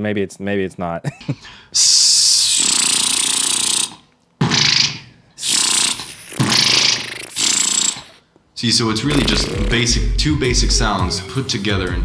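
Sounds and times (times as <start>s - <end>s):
beatboxed lip bass: 1.8s - 4.1s, 5.4s - 8.2s, 9.0s - 11.0s
hissing sh sound: 5.4s - 8.2s.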